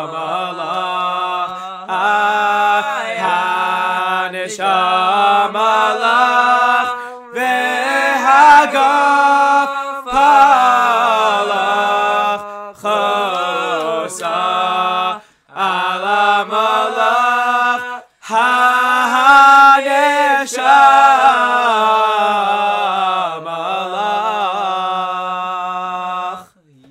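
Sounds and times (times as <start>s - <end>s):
man singing a cappella: 0.0s - 26.9s.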